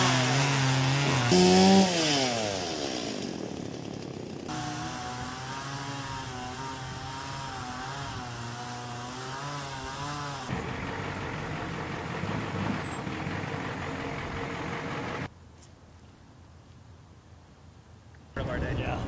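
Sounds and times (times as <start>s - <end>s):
chainsaw cutting: 0.0s - 15.3s.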